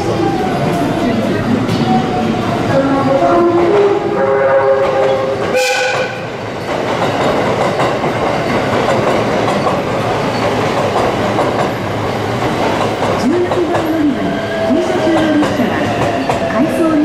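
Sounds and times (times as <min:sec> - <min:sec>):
train music horn melody: 0:02.8 - 0:06.3
train horn blast: 0:02.9 - 0:06.3
train wheels clattering on rails: 0:04.8 - 0:17.0.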